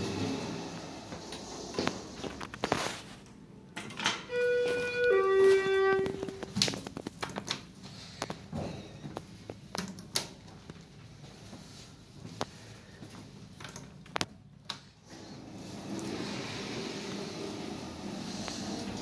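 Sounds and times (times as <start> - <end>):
elevator chime: 4.2 - 6.4.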